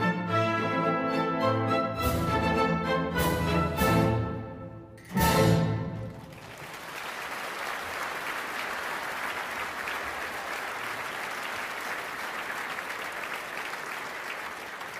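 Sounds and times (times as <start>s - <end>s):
audience applauding: 6.0s - 14.9s.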